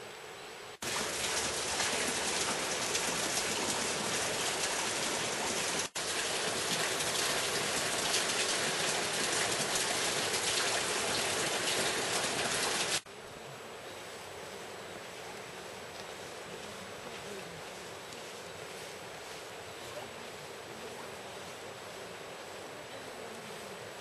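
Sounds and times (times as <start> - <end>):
hiss of rushing water: 0.8 - 24.0.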